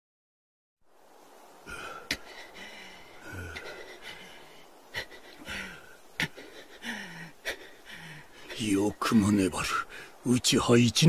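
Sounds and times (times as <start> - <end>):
heavy breathing and gasps: 1.6 - 8.6.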